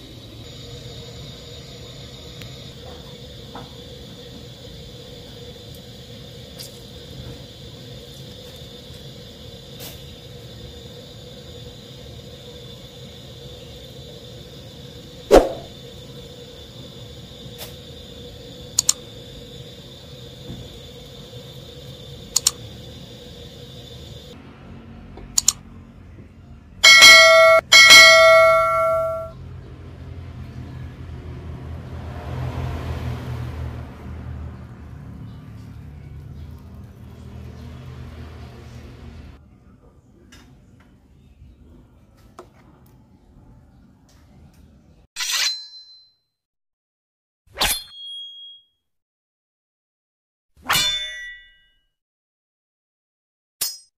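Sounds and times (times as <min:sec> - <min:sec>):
faint hum: 0:00.0 - 0:31.0
loud metal clangs: 0:26.9 - 0:29.3.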